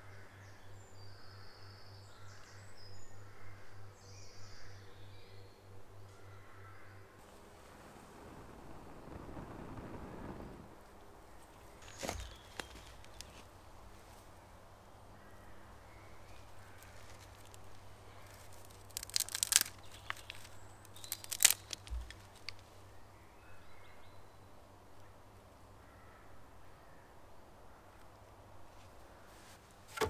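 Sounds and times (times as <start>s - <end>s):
twigs crackling and snapping in fire: 7.6s - 13.5s, 16.3s - 22.8s.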